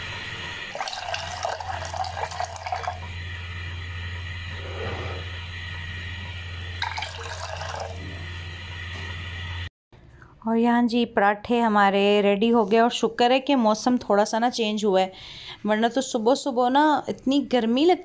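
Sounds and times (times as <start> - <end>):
steady low hum: 0.0 - 10.5
tea boiling and bubbling: 0.7 - 3.4, 4.5 - 8.8.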